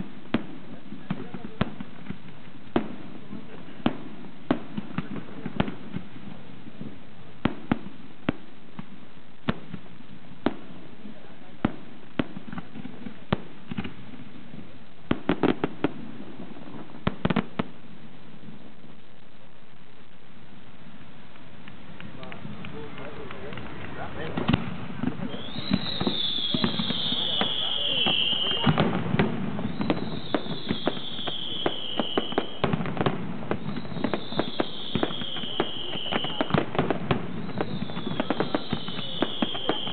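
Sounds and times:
fireworks bangs and pops: 0.0 - 39.9
firework shells bursting: 21.0 - 39.9.

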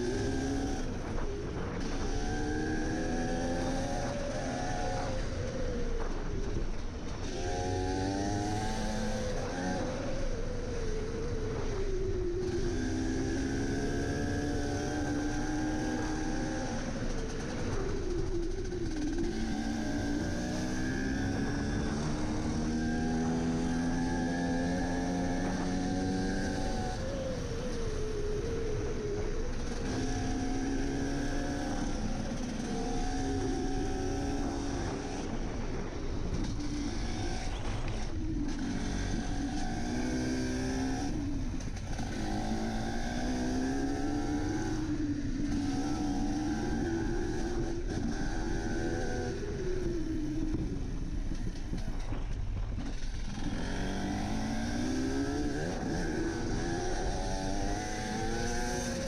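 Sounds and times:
motorcycle engine revving: 0.0 - 59.0
steady rushing noise: 14.1 - 59.0.

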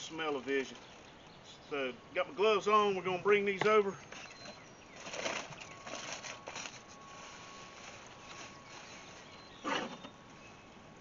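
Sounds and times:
aluminium foil crinkling: 5.0 - 9.4
plastic bag rustling: 5.0 - 9.9.

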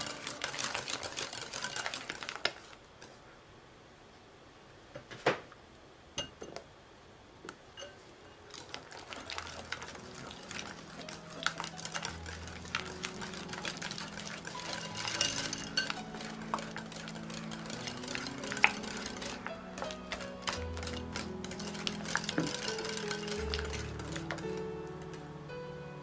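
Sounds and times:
whisk clinking against glass bowl: 0.0 - 2.4, 7.8 - 24.4.

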